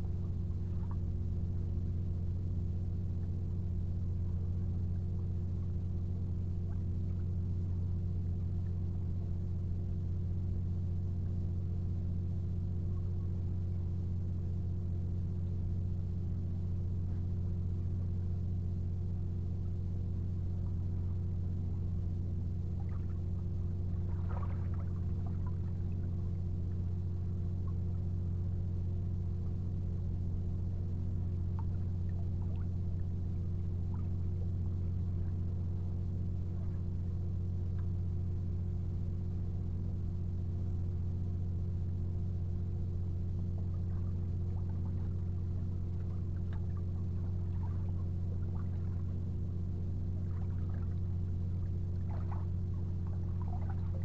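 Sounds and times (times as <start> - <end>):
steady low engine-like drone: 0.0 - 54.0.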